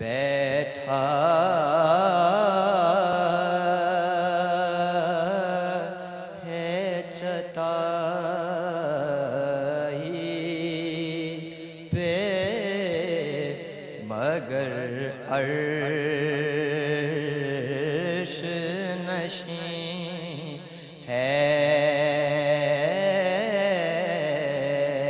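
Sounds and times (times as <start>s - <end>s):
man chanting solo: 12.0s - 25.0s.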